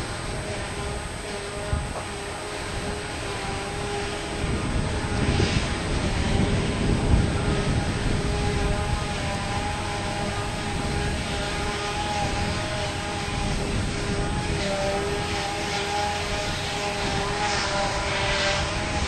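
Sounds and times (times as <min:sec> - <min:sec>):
diesel machinery engine drone: 0:00.0 - 0:19.0
machinery whine: 0:00.0 - 0:19.0.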